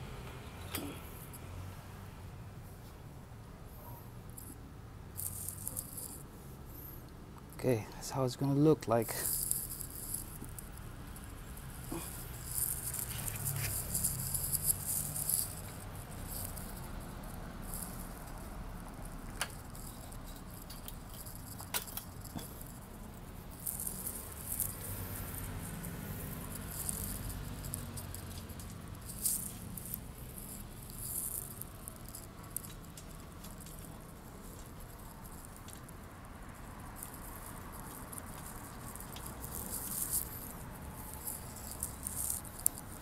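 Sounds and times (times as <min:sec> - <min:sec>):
sharp metal clicks: 0:09.2 - 0:35.9.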